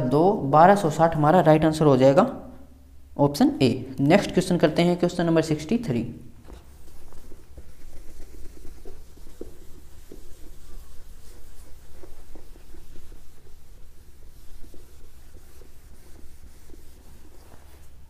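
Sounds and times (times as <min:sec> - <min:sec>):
duster scrubbing whiteboard: 0:06.4 - 0:18.0.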